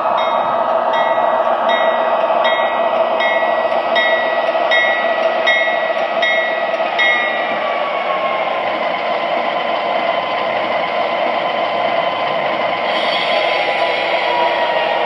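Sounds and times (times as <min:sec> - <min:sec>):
model train wheels on track: 0:00.0 - 0:15.0
model locomotive bell ringing: 0:00.2 - 0:07.6.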